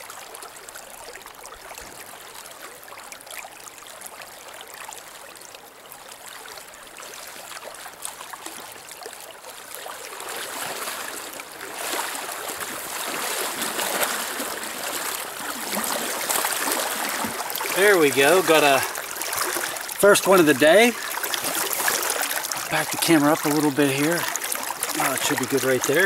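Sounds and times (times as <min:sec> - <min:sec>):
river water running: 0:00.0 - 0:26.0
person wading splashing: 0:09.8 - 0:26.0.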